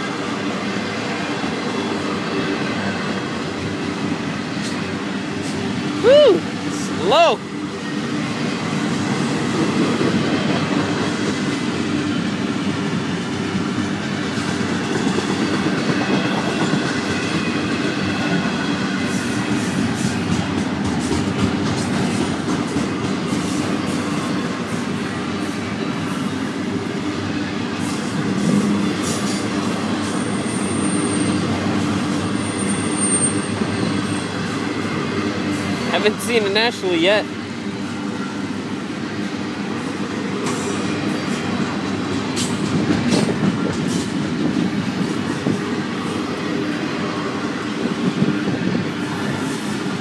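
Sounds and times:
freight train wheels clattering: 8.7s - 26.4s, 39.8s - 46.2s.

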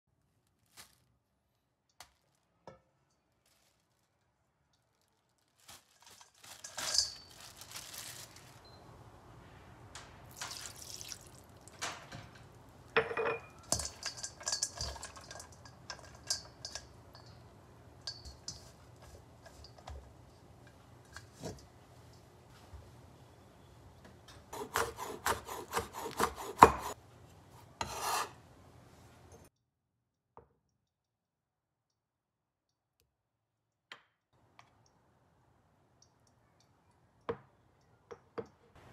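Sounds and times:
water dripping: 10.3s - 12.0s
bowl clinking against board: 13.0s - 17.4s.

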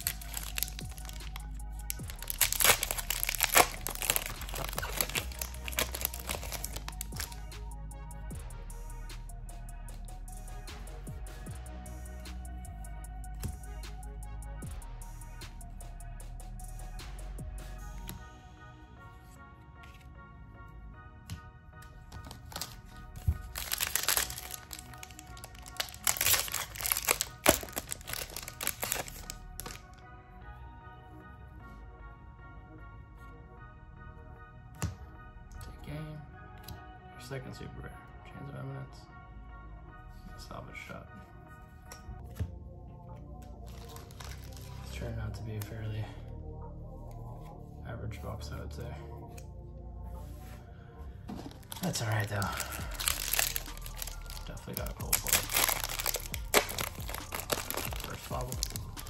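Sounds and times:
foil wrapper crinkling and tearing: 0.0s - 7.4s, 22.2s - 22.8s, 23.4s - 29.9s, 43.7s - 44.8s, 51.5s - 59.0s
background music: 0.0s - 59.0s.

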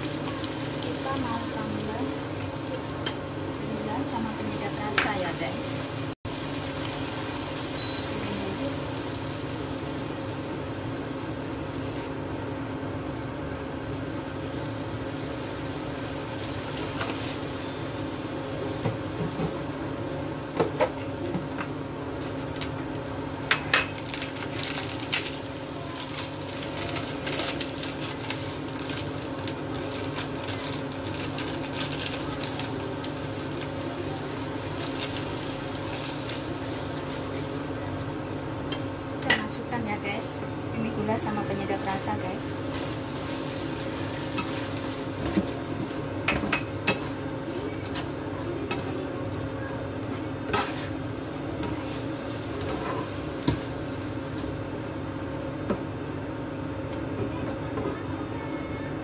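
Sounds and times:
food frying with crackling: 0.0s - 57.7s
induction cooktop humming: 0.0s - 59.0s
short beep: 7.8s - 8.1s.

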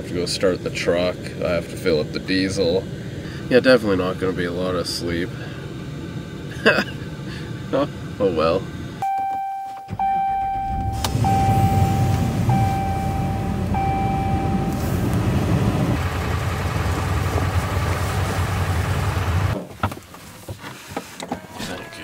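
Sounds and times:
truck engine starting and running: 5.4s - 19.6s
dashboard warning chime: 9.0s - 15.0s, 21.3s - 22.0s.

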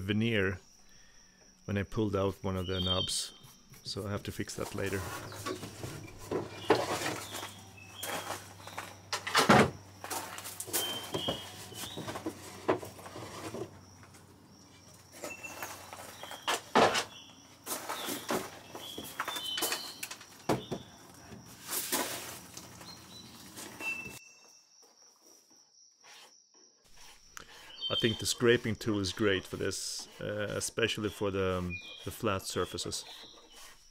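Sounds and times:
small birds chirping: 0.2s - 9.2s, 9.9s - 21.5s, 22.4s - 24.8s, 26.9s - 33.9s
wooden knocks and scraping: 3.6s - 24.2s.

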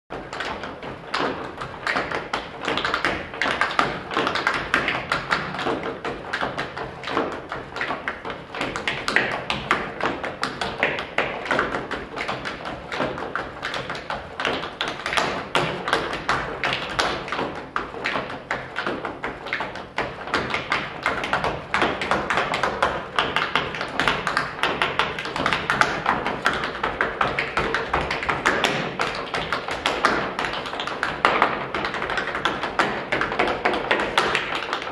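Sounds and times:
tap shoes on wooden floor: 0.1s - 34.9s.

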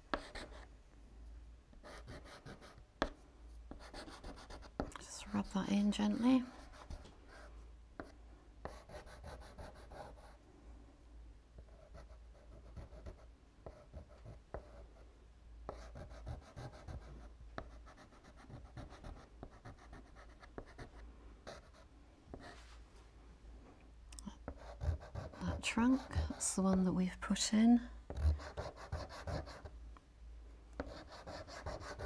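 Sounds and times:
pastel scratching on paper: 30.8s - 32.0s.

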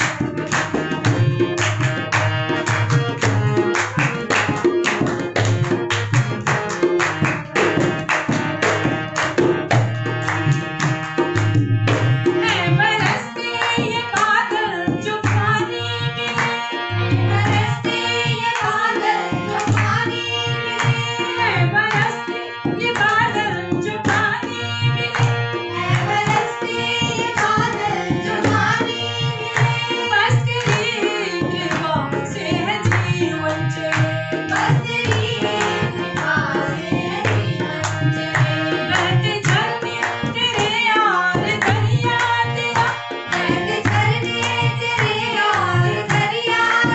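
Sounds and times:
hand drum beating rhythm: 0.0s - 15.9s, 17.1s - 46.9s
harmonium: 0.0s - 46.9s
woman singing: 12.4s - 16.4s, 17.4s - 25.3s, 26.0s - 46.9s.

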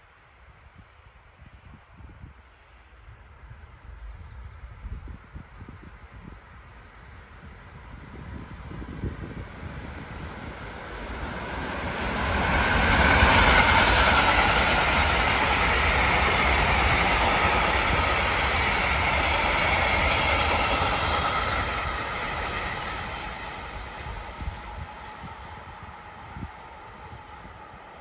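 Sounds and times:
freight train passing: 6.5s - 28.0s.

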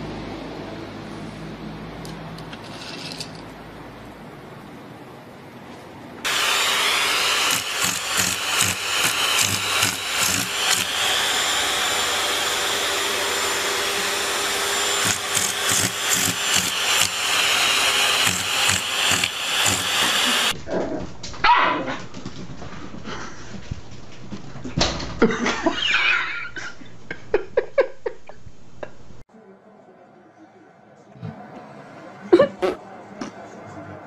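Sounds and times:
vacuum cleaner running: 6.2s - 20.6s.

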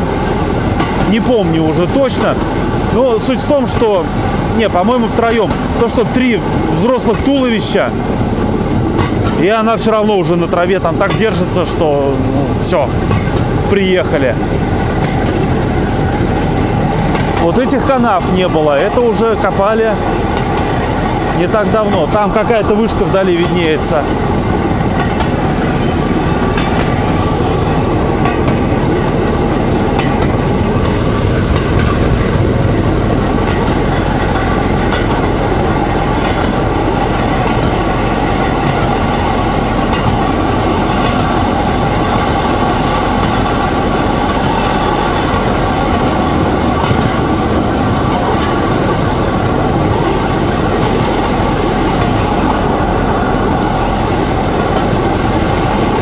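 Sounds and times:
engine drone: 0.0s - 56.0s
wheels rattling over rails: 0.0s - 56.0s.

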